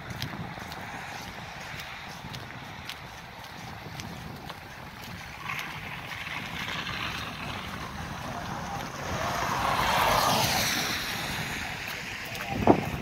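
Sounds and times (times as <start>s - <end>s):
car engines passing: 0.0s - 13.0s
tyres hissing on wet road: 5.1s - 13.0s.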